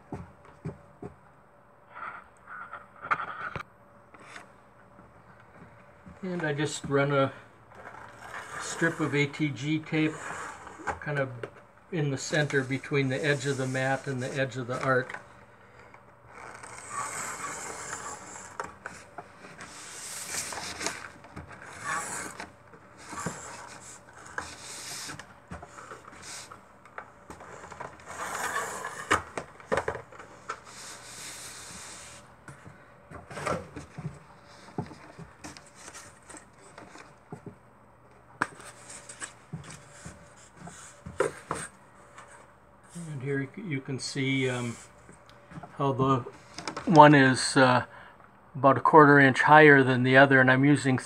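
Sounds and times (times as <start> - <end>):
tape gun rasping: 16.3 - 19.0, 19.6 - 26.6.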